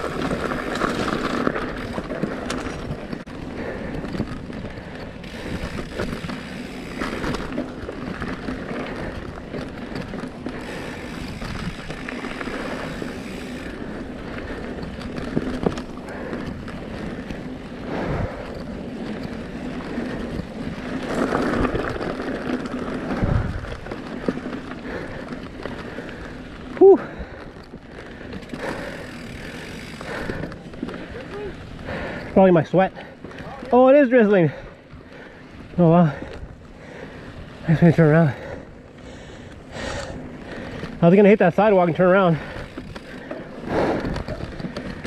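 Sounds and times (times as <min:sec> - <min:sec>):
bike knocking and rattling: 0:00.0 - 0:45.0
wind on microphone: 0:23.1 - 0:23.9.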